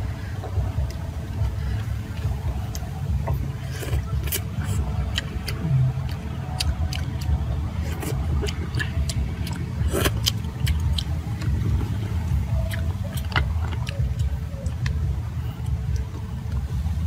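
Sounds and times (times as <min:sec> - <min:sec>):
man chewing with mouth clicks: 0:00.0 - 0:17.0
steady low rumble: 0:00.0 - 0:17.0.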